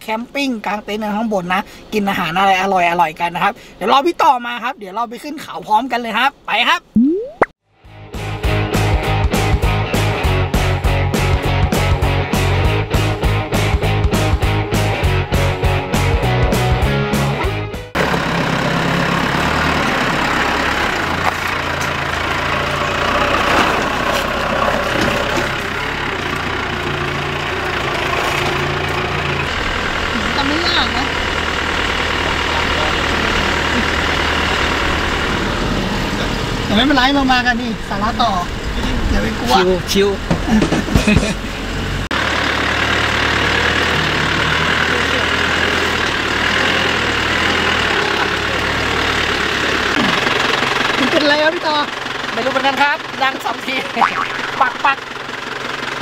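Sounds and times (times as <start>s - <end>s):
pickup truck engine running: 18.0s - 56.0s.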